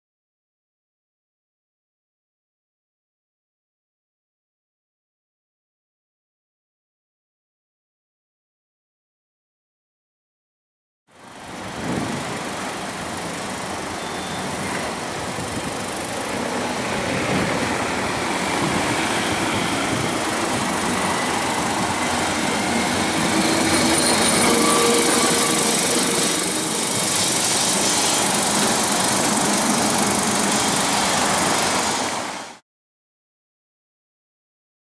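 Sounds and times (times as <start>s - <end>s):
tram rumbling over rails: 11.2s - 32.6s
thin whining tones: 17.9s - 31.6s.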